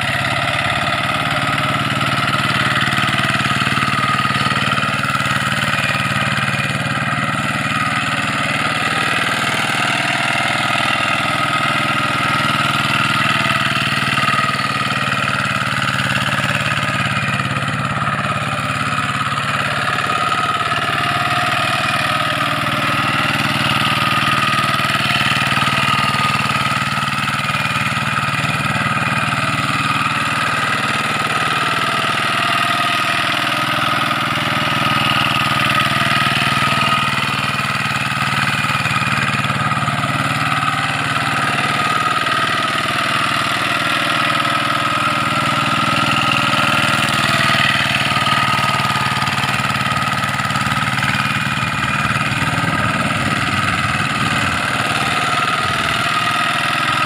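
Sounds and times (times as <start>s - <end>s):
hand tractor engine running: 0.0s - 57.0s.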